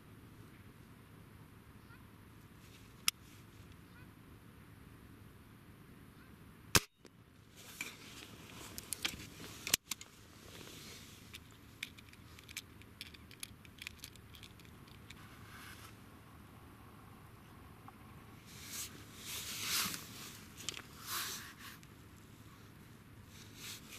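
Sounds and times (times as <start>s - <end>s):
clatter and clicks: 11.3s - 15.2s.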